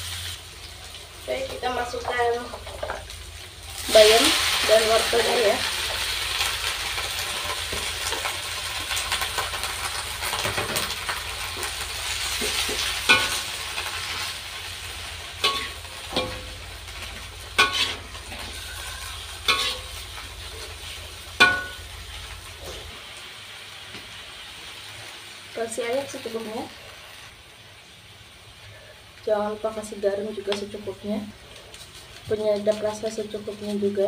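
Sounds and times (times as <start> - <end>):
vegetables sizzling in oil: 0.0 - 34.0.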